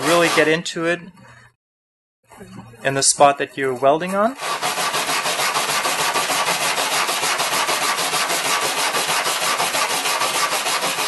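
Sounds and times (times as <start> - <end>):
wire brush scratching aluminum: 0.0 - 0.6, 4.4 - 11.0.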